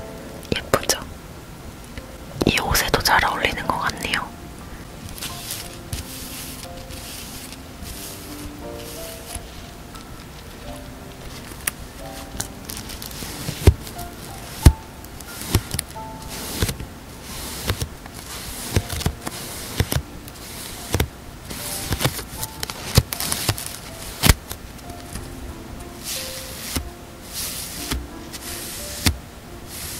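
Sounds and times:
plastic wrapper crinkling: 5.0s - 25.3s.

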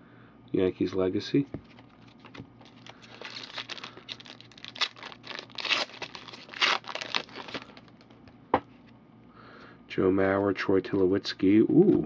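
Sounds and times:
foil wrapper crinkling and tearing: 2.0s - 8.0s.

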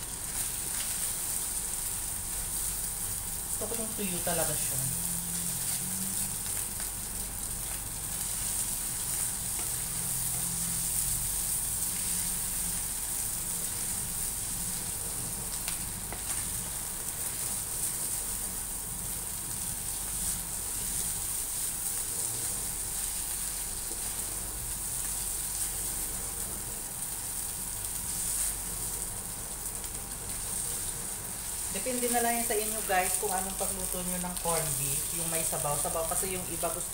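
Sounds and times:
meat sizzling in a pan: 0.0s - 36.9s
spatula stirring: 7.6s - 18.8s, 19.4s - 25.9s.

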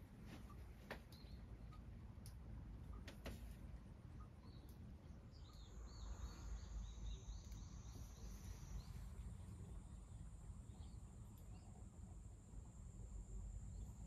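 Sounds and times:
thin steady high tone: 5.4s - 14.0s.

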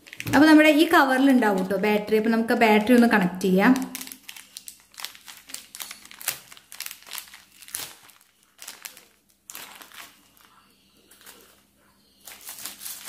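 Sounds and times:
plastic bag crinkling: 0.0s - 2.0s, 2.8s - 13.0s.

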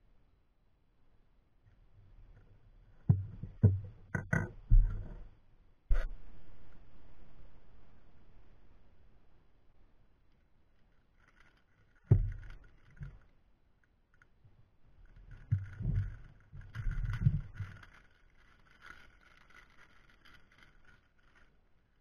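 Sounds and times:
low bumps and crackles: 3.0s - 9.0s, 11.2s - 13.3s, 15.0s - 21.5s
plastic bag crinkling: 17.0s - 21.5s.

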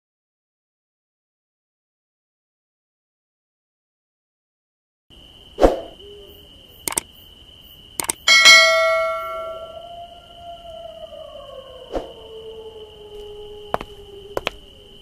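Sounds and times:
mouse clicks: 6.9s - 7.1s, 8.0s - 8.2s
notification bell ringing: 8.0s - 9.8s
steady high tone: 8.0s - 9.9s.

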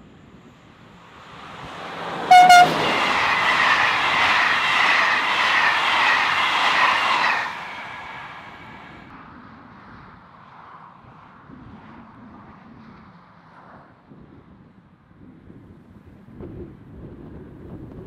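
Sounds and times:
train wheels rolling on rails: 1.0s - 9.1s
train horn toots: 2.2s - 4.1s.

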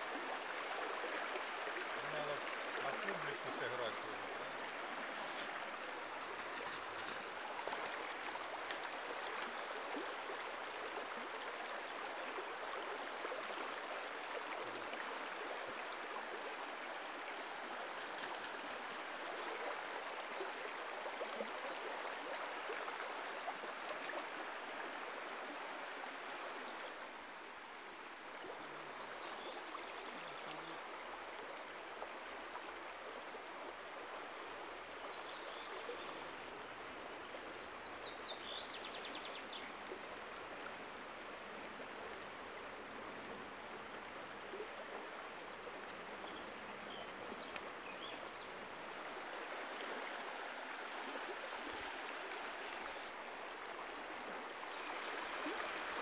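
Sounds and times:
river rushing over stones: 0.0s - 13.8s.

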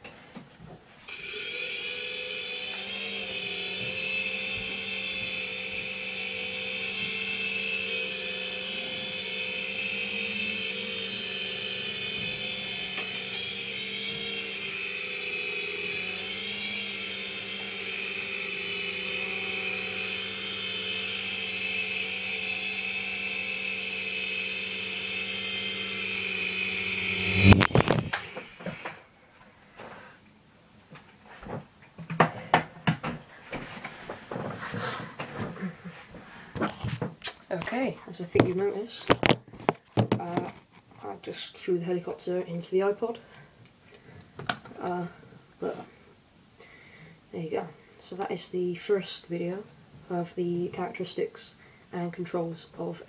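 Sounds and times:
rc helicopter motor whine: 1.1s - 29.0s.

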